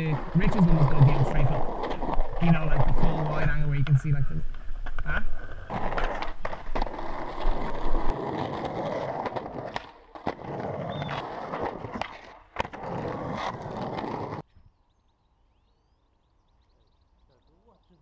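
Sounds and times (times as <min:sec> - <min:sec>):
skateboard wheels on rough concrete: 0:00.0 - 0:14.5
skateboard clacking on ground: 0:05.7 - 0:14.5.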